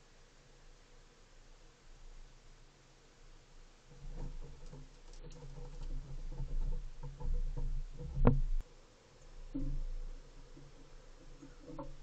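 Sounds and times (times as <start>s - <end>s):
small knocks: 3.9s - 8.6s, 9.4s - 12.0s
squirrel scrabbling on railing: 3.9s - 8.6s, 9.4s - 12.0s.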